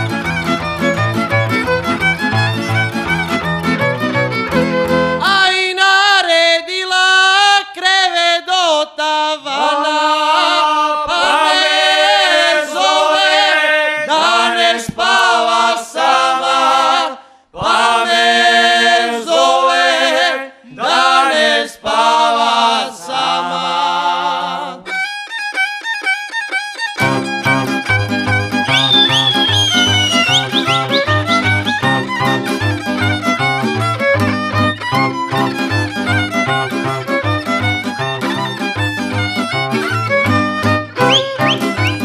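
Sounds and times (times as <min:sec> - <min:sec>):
folk string band playing: 0:00.0 - 0:05.2, 0:24.8 - 0:42.0
male choir singing in harmony: 0:09.5 - 0:24.8.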